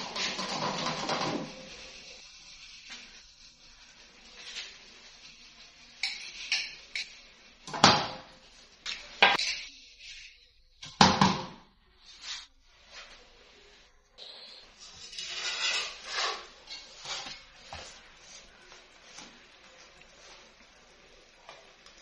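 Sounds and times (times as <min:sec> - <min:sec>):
metal pots and utensils clattering: 0:00.0 - 0:02.2, 0:05.8 - 0:11.5, 0:14.8 - 0:18.0.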